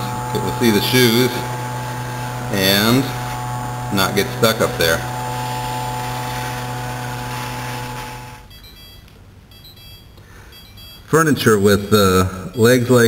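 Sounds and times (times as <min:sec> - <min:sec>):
robot vacuum motor humming: 0:00.0 - 0:08.5.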